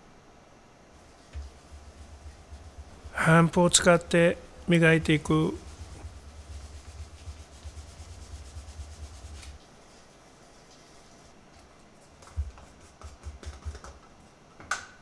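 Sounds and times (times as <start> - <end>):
cloth rubbing on leather: 1.0 - 11.4.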